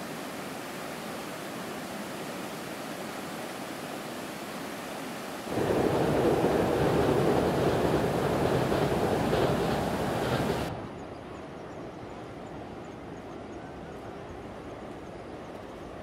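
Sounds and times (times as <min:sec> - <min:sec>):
wind hiss: 0:00.0 - 0:13.3
train rumbling over steel bridge: 0:05.5 - 0:16.0.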